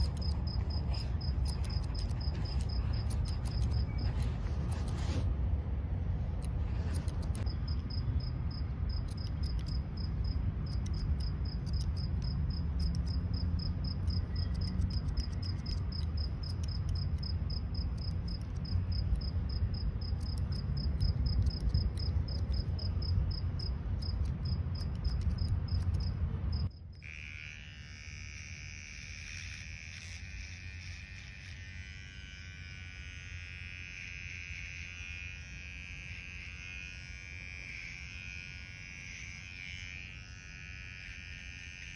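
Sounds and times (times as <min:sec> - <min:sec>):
cricket chirping: 0:00.0 - 0:04.2, 0:07.2 - 0:27.2
electric hair trimmer buzzing: 0:00.0 - 0:04.3, 0:27.0 - 0:41.9
scissors snipping hair: 0:00.0 - 0:05.2, 0:06.4 - 0:08.0, 0:08.9 - 0:22.9, 0:24.0 - 0:26.1, 0:27.1 - 0:40.7
low outdoor rumble: 0:00.0 - 0:41.8.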